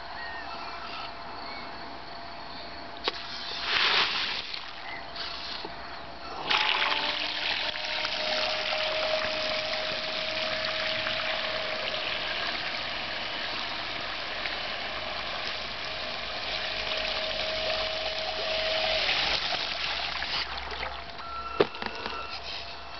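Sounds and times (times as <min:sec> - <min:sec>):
rushing water hiss: 0:03.0 - 0:05.7, 0:06.6 - 0:20.7
model boat motor whine: 0:05.6 - 0:22.9.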